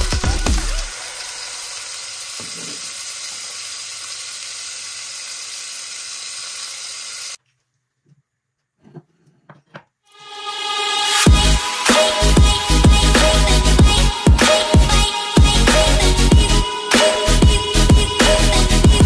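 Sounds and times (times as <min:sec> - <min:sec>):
electronic music: 0:00.0 - 0:01.7, 0:10.1 - 0:19.0
food sizzling in a frying pan: 0:00.0 - 0:07.4.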